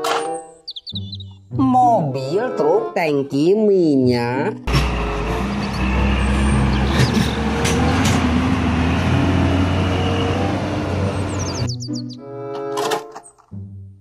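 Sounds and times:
truck engine driving through mud: 0:04.7 - 0:11.6.

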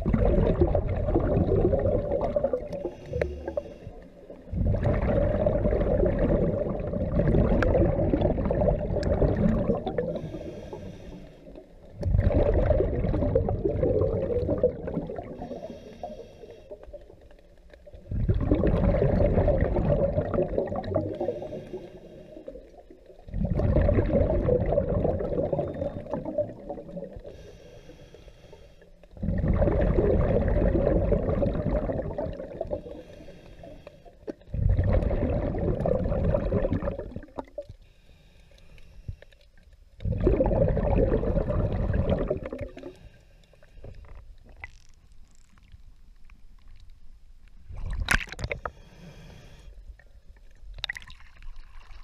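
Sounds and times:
exhaled air bubbling underwater: 0:00.0 - 0:52.0
hissing inhale through regulator: 0:02.7 - 0:05.6, 0:09.8 - 0:11.9, 0:15.3 - 0:17.2, 0:20.8 - 0:23.2, 0:27.1 - 0:29.3, 0:32.6 - 0:34.8, 0:37.7 - 0:39.6, 0:41.7 - 0:44.4, 0:48.6 - 0:50.0.

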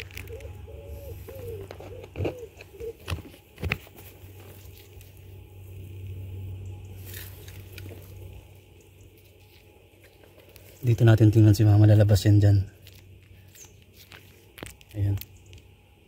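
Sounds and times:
low hum: 0:00.0 - 0:16.0
leaves brushing against phone: 0:07.0 - 0:08.5.

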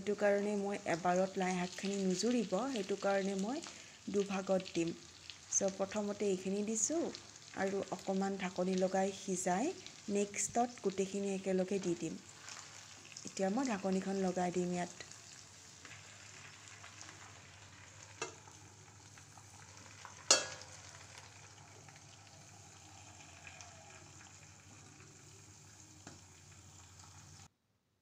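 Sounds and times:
food sizzling in a pan: 0:00.0 - 0:27.5
metal lid clinking on pan: 0:20.3 - 0:20.6.

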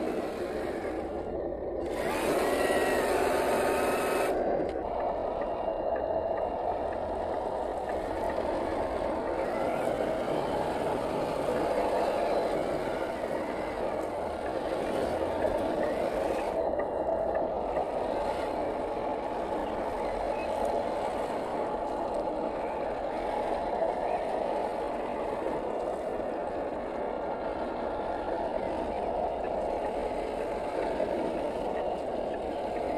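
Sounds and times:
toy car electric motor and gearbox: 0:01.8 - 0:04.8, 0:09.2 - 0:19.0.

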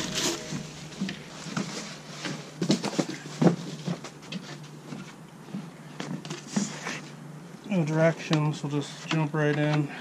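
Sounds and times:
plastic wrapping crinkling: 0:00.0 - 0:04.4
steady low hum: 0:00.0 - 0:10.0.

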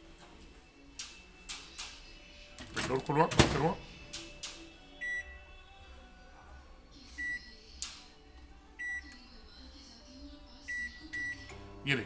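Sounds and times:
microwave control panel beeps: 0:05.0 - 0:05.4, 0:07.2 - 0:07.5, 0:08.8 - 0:09.2, 0:10.7 - 0:11.6.

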